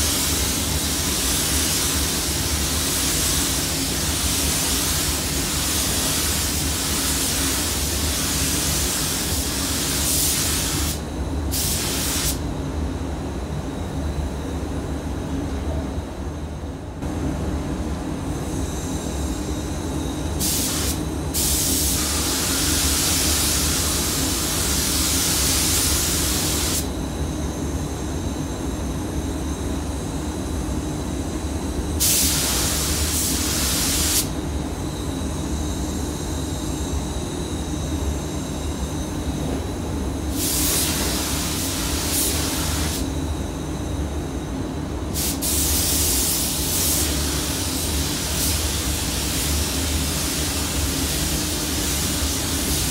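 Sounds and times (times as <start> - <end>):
spray gun hissing: 0.0 - 12.4, 20.4 - 26.9, 32.0 - 34.3, 40.3 - 43.1, 45.2 - 52.9.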